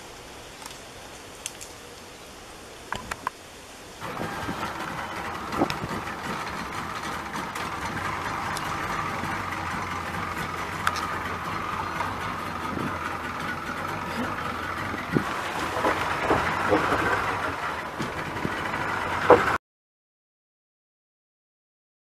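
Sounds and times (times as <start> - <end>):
water noise: 0.0 - 19.6
wind noise: 4.0 - 6.6, 12.4 - 13.2, 14.2 - 17.3
boat motor running: 4.0 - 19.6
sharp knocks: 15.1 - 17.4.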